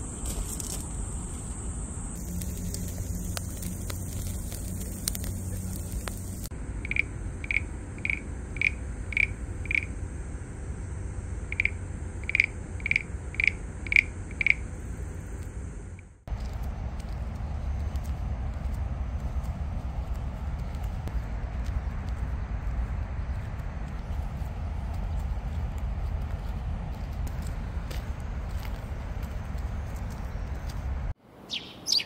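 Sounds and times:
insects trilling: 0:00.0 - 0:16.5
crackling from charcoal grill: 0:02.1 - 0:07.0
frog calling: 0:02.2 - 0:10.0, 0:11.4 - 0:15.0, 0:31.5 - 0:32.0.

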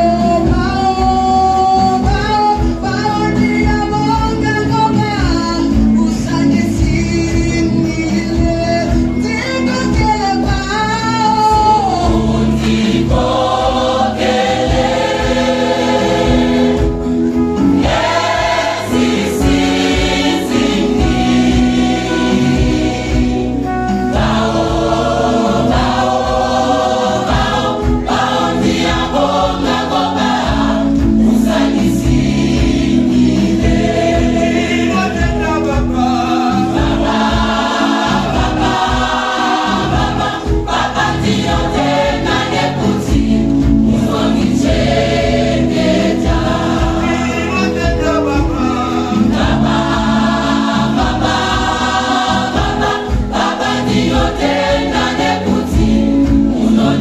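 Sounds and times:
choir singing in harmony: 0:10.8 - 0:57.0.

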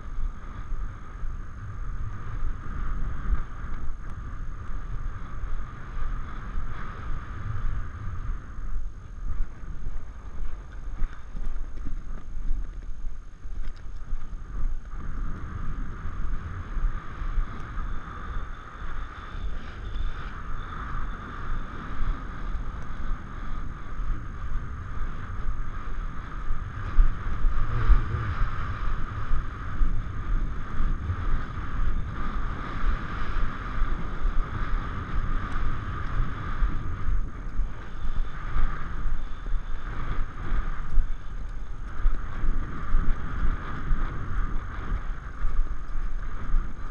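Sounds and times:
horse hoofbeats galloping on grass: 0:00.0 - 0:46.9
wind buffeting microphone: 0:00.0 - 0:46.9.

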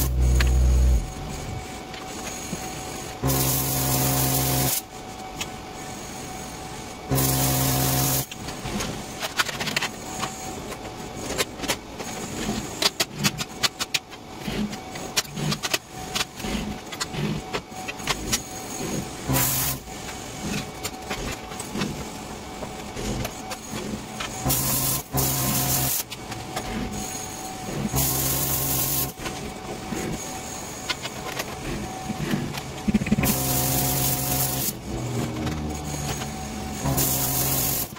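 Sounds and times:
plasma cutter hissing: 0:00.0 - 0:01.7, 0:03.2 - 0:04.8, 0:07.1 - 0:08.3, 0:19.3 - 0:19.8, 0:28.0 - 0:29.1, 0:33.2 - 0:34.8, 0:36.8 - 0:37.9.

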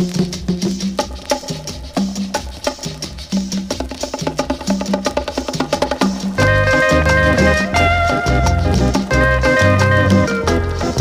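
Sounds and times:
fast percussion clicking: 0:00.0 - 0:11.0
held bass line: 0:06.3 - 0:11.0.

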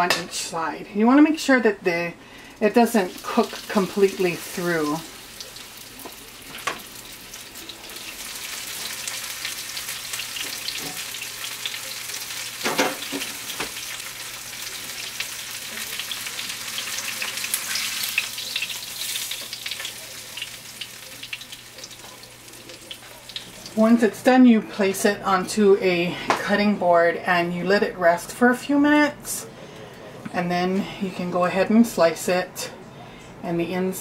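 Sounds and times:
fish searing in oil: 0:02.9 - 0:24.0.

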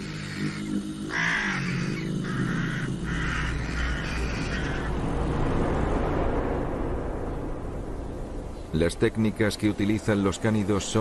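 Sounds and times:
magpies chattering: 0:00.0 - 0:04.9
low steady drone: 0:00.0 - 0:08.5.

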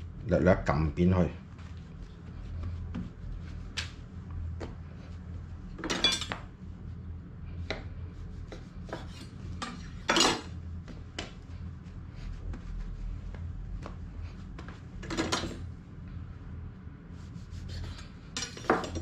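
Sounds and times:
low steady hum: 0:00.0 - 0:19.0
bread slices tapped and pressed: 0:07.6 - 0:09.1
knife scraping wooden cutting board: 0:08.5 - 0:10.0.

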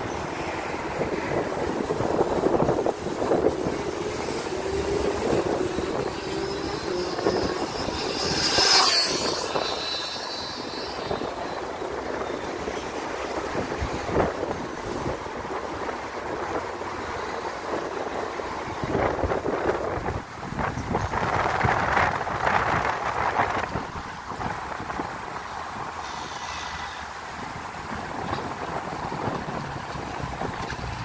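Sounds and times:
rc car motor whine: 0:03.3 - 0:12.6.

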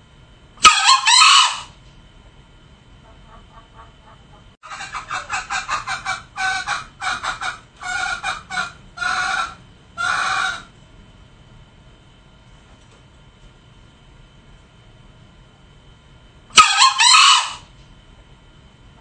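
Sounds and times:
junglefowl calling: 0:00.6 - 0:01.8, 0:03.0 - 0:10.7, 0:16.5 - 0:17.7.

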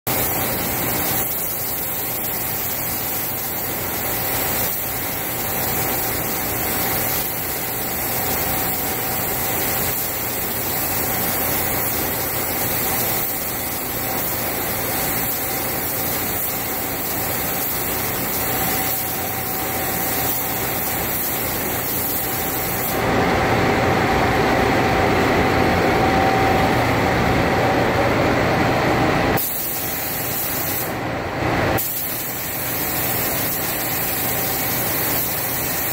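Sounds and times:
spray gun hissing: 0:00.1 - 0:23.0, 0:29.4 - 0:31.0, 0:31.8 - 0:35.9.

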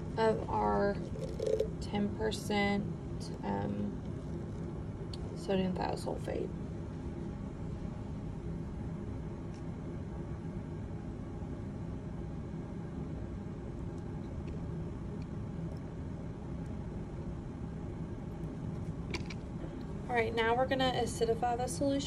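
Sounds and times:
ventilation hum: 0:00.0 - 0:22.0.

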